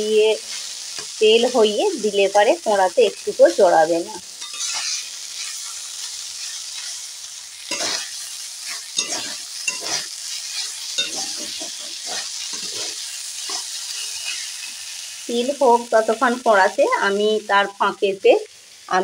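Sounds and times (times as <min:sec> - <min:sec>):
paste sizzling in oil: 0:00.0 - 0:19.0
metal spatula scraping pan: 0:04.4 - 0:05.7, 0:07.7 - 0:14.8.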